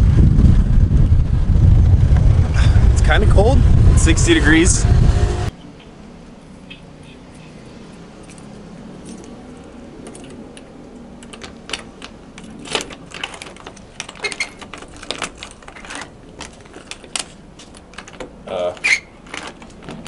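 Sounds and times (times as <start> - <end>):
keys jangling: 7.3 - 18.2
key scraping in lock: 9.1 - 18.2.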